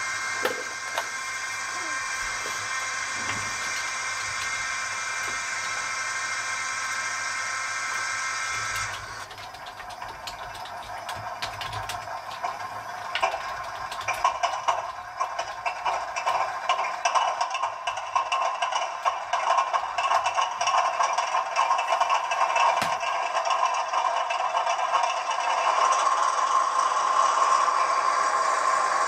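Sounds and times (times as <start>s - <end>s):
hiss with whistling tones: 0.0s - 9.2s, 25.7s - 29.0s
clattering engine sound: 0.0s - 29.0s.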